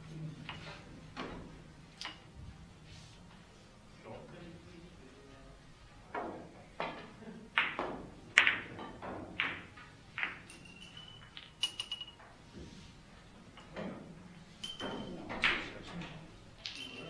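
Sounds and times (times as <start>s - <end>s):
billiard balls clacking: 6.1s - 12.6s, 13.4s - 17.0s.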